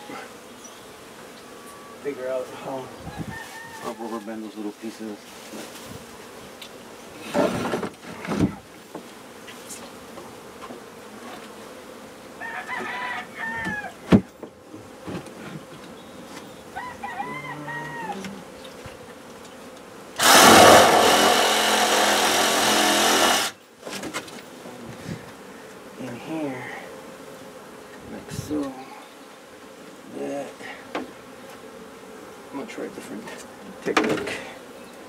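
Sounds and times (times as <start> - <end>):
honey bees buzzing: 0.0 - 35.0
rooster crowing: 3.1 - 4.2, 12.4 - 14.0, 16.8 - 18.4
loud rushing noise: 20.2 - 23.5.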